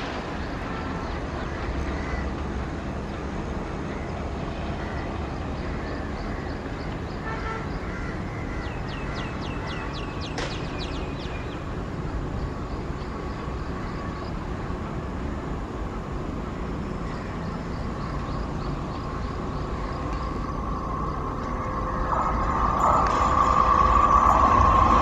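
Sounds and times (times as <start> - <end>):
train rumble and hum: 0.0 - 25.0
bird chirping: 8.4 - 11.8, 16.9 - 25.0.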